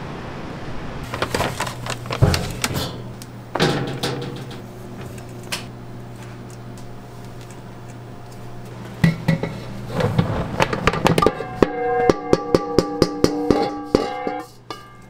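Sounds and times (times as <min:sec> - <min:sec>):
steady low hum: 0:00.0 - 0:15.0
metal scoop knocking steel bowl: 0:11.0 - 0:15.0
bowl ringing: 0:11.2 - 0:15.0.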